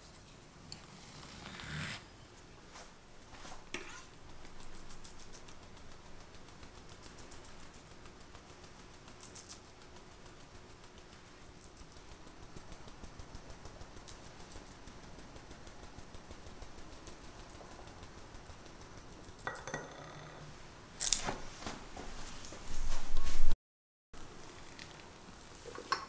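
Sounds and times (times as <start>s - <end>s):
kitchen clatter: 19.4s - 21.4s, 25.6s - 26.0s.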